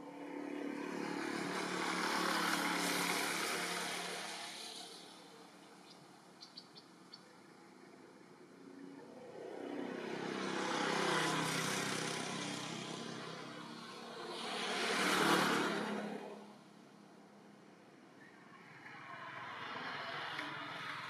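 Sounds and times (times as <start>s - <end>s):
motor vehicles passing: 0.0s - 21.0s.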